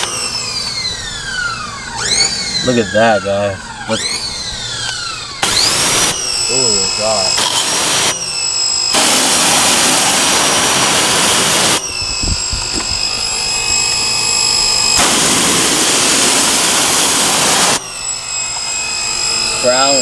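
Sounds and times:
high-pitched whine: 0.0 - 20.0
pressure washer spray hissing: 9.0 - 14.2, 15.0 - 17.8.

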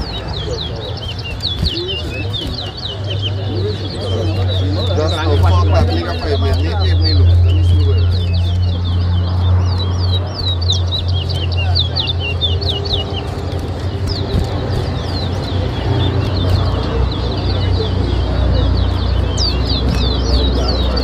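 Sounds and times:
faint background voices: 0.0 - 21.0.

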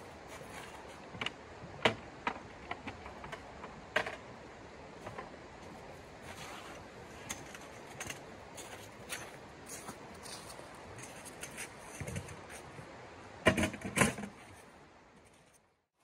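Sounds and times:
camp gear clicks and knocks: 0.3 - 4.3, 5.0 - 12.7.

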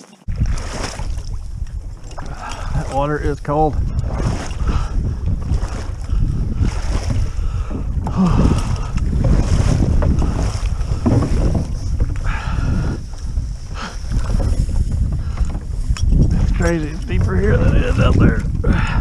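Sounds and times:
splashing steps in water: 0.2 - 3.0, 3.8 - 12.6
wind rumble on microphone: 0.3 - 19.0.

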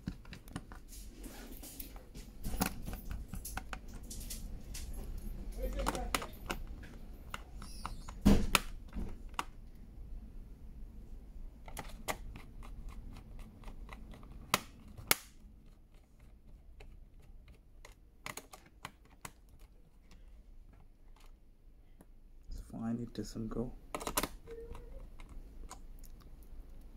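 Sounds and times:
plastic clicks and snaps: 5.6 - 9.6, 16.2 - 20.2, 23.9 - 26.9.

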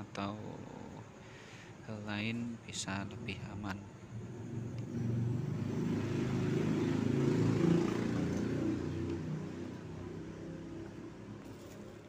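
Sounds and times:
vehicle engine passing by: 4.1 - 12.0.

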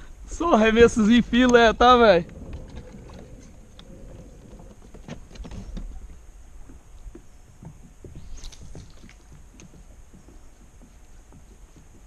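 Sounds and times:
low rumble: 0.0 - 6.7.

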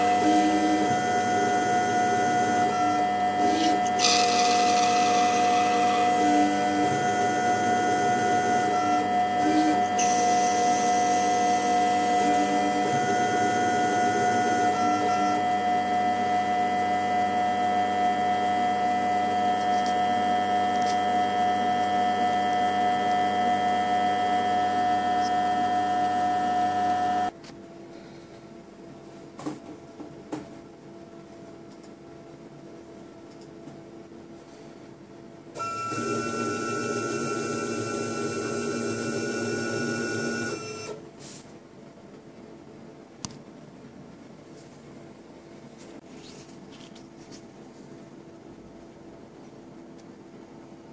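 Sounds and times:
lathe motor whine: 0.0 - 27.3, 35.6 - 41.0
stepper motor tones: 0.0 - 27.3, 35.6 - 41.0.

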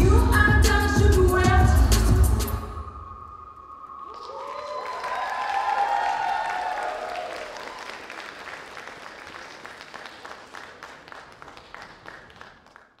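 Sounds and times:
audience applauding: 4.0 - 13.0.

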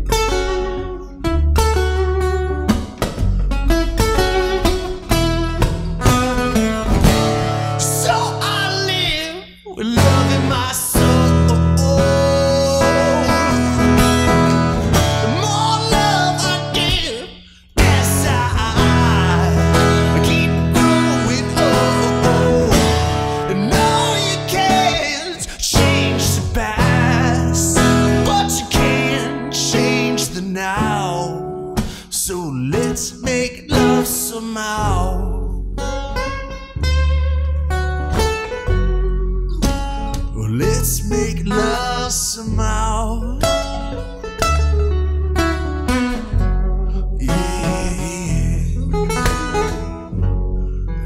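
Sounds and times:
acoustic guitar: 0.0 - 51.0
man singing wordless notes: 6.3 - 35.7, 40.2 - 44.0, 47.0 - 49.9.

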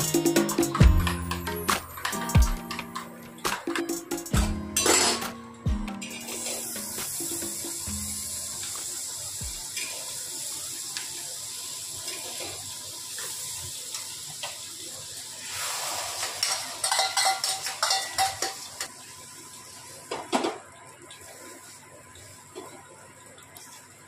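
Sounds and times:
butter sizzling in a pan: 6.3 - 20.0
spoon clinking in steel bowl: 16.8 - 18.7.

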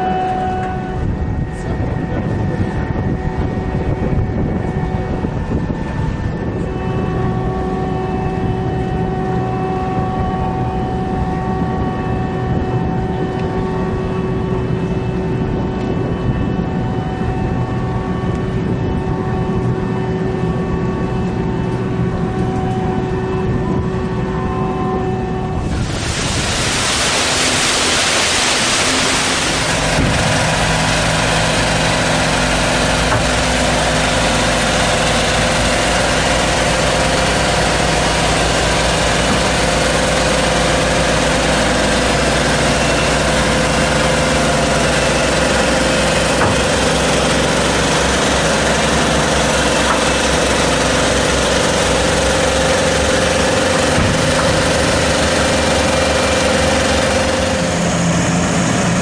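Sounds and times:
high whine: 0.0 - 59.0
water: 0.0 - 59.0
wind: 0.0 - 59.0
diesel engine idling: 25.6 - 59.0.

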